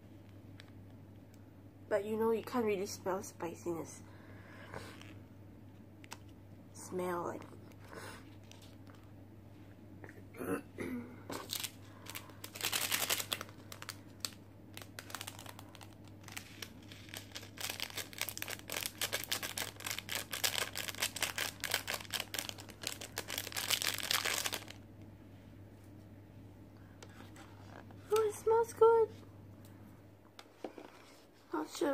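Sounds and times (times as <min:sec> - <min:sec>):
plastic seasoning packets crinkling: 0:11.4 - 0:24.8.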